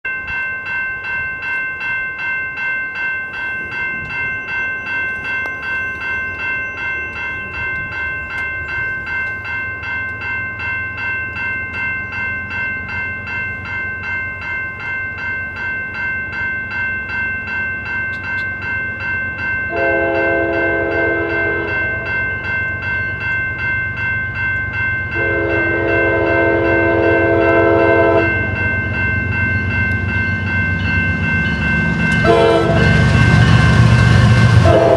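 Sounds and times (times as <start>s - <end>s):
crossing bell ringing: 0.0s - 34.9s
diesel locomotive rumble: 17.8s - 34.9s
train air horn blasts: 19.7s - 22.1s, 25.2s - 28.3s, 32.2s - 33.2s, 34.6s - 34.9s.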